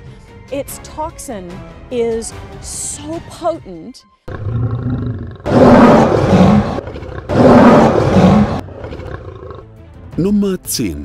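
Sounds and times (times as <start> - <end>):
lion growling: 4.3 - 9.7
lion roaring: 4.3 - 9.7.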